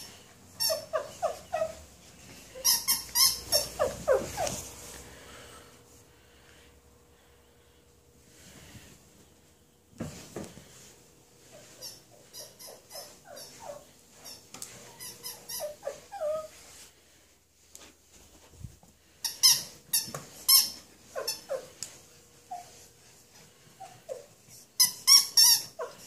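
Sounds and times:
rubber squeaker toy squeaks: 0.6s - 1.8s, 2.5s - 4.6s, 11.8s - 16.4s, 19.3s - 21.6s, 24.8s - 26.0s.

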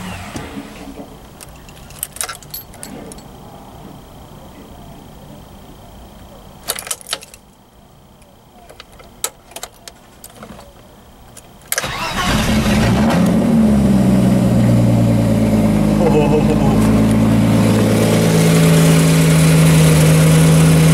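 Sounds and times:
car engine starting and idling: 0.0s - 4.4s, 11.3s - 20.9s.

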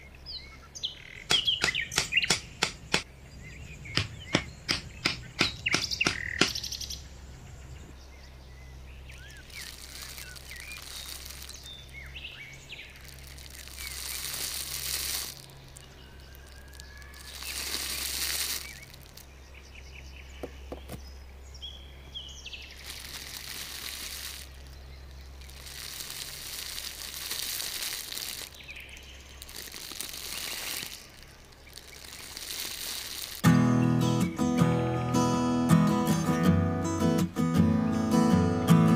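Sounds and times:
sand rustling and crunching: 9.0s - 19.8s, 22.4s - 34.7s
acoustic guitar music: 33.4s - 38.9s.

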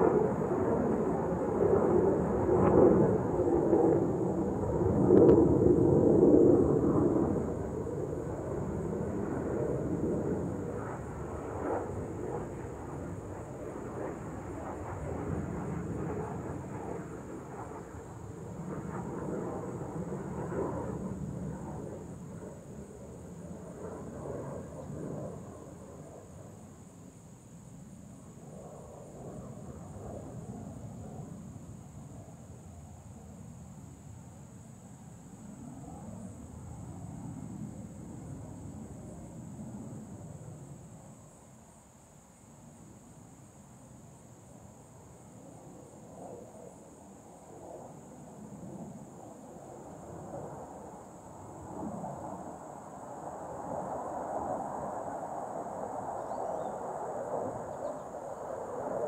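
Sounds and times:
distant jet rumble: 0.0s - 41.8s, 44.4s - 59.0s.

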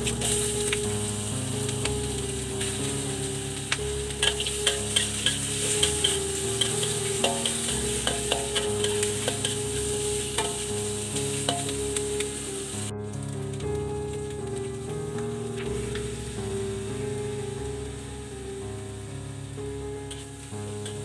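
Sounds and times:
soft background music: 0.0s - 21.0s
food sizzling in oil in a wok: 0.2s - 3.4s, 4.1s - 12.7s.

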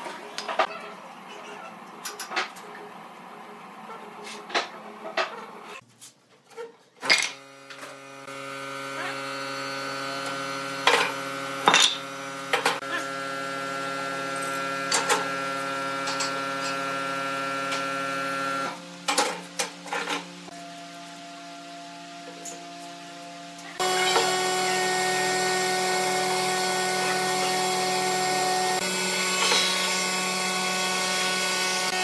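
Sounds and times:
steady machine hum: 7.4s - 19.0s, 23.1s - 32.0s.

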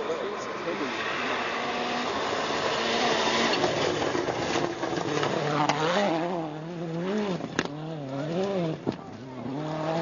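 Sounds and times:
gravel noise: 0.0s - 10.0s
rally car engine revving: 0.0s - 10.0s.

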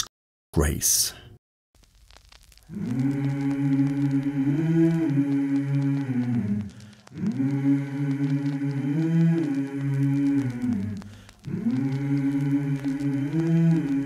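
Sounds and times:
film score with sliding low tones: 2.0s - 14.0s.

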